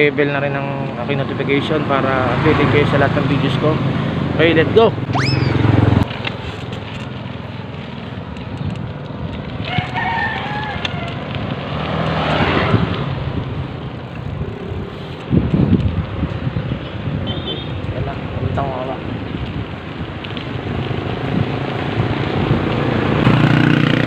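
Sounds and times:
wind and riding noise: 0:00.0 - 0:24.0
rooster crowing: 0:09.7 - 0:11.3.

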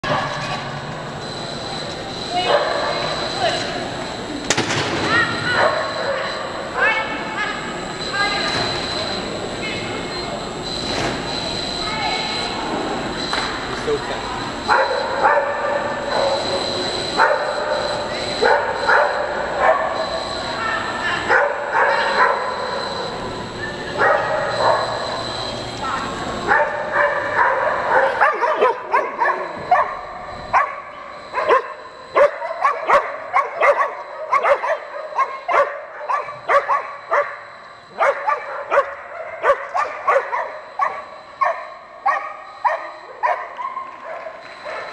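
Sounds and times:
indoor arena hum: 0:00.0 - 0:44.9
dog barking: 0:02.4 - 0:03.1, 0:05.5 - 0:06.4, 0:14.7 - 0:16.6, 0:17.2 - 0:17.7, 0:18.4 - 0:20.1, 0:21.3 - 0:22.7, 0:24.0 - 0:25.0, 0:26.4 - 0:44.9.

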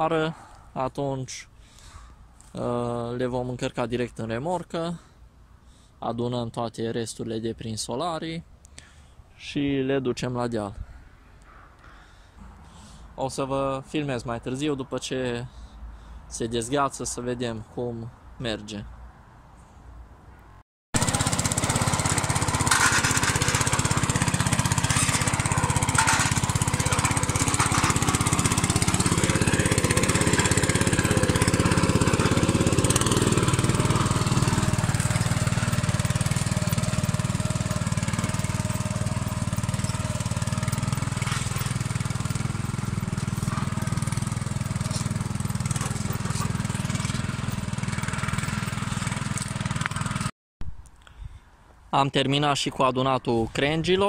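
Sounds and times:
tractor engine running: 0:21.0 - 0:50.3.

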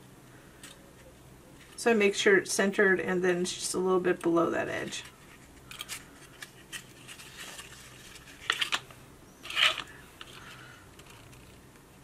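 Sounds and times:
cardstock rustling and clicking: 0:05.0 - 0:11.7.

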